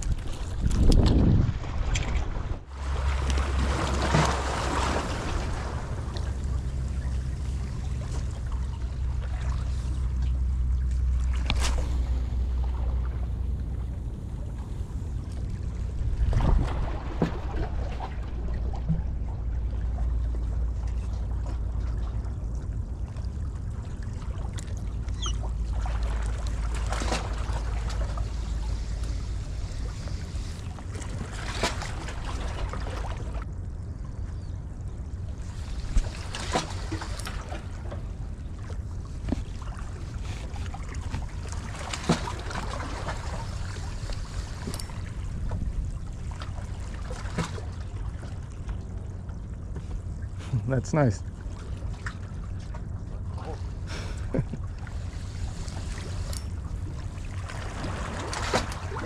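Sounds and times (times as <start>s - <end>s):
sea water washing against rocks: 0.0s - 8.6s, 55.1s - 59.0s
wind rumbling on microphone: 0.0s - 50.5s.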